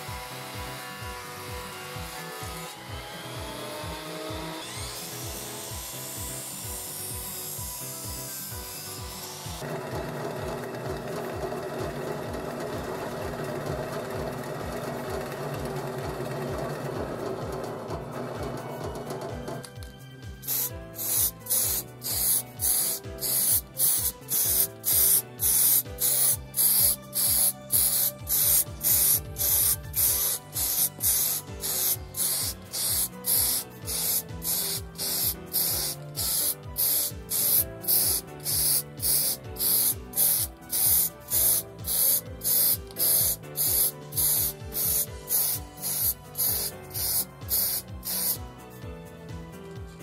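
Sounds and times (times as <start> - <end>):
background music: 0.0 - 50.0
spray paint can hissing: 20.4 - 48.4.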